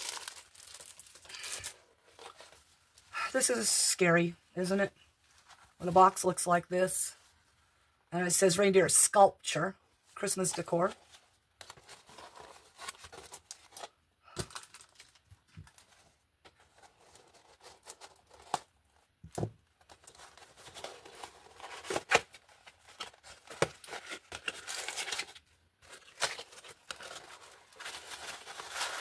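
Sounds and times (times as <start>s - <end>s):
cardboard box ripping: 0.0s - 1.6s
handling rustle: 19.8s - 29.0s.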